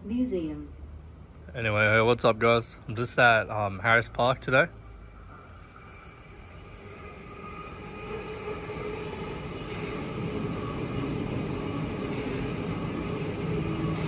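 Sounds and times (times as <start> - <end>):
wheels rumbling on rail: 0.0 - 14.0
electric train motor whine: 3.2 - 14.0.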